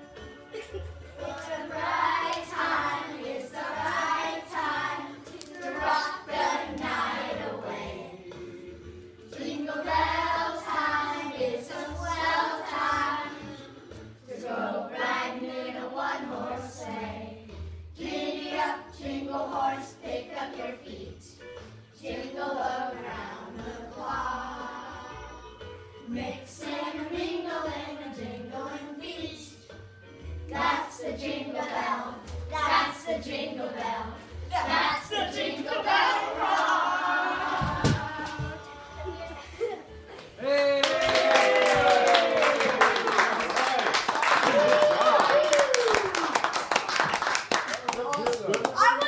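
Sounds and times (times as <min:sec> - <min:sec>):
children singing: 0:00.5 - 0:08.7, 0:09.3 - 0:21.3, 0:22.0 - 0:25.4, 0:30.5 - 0:39.8.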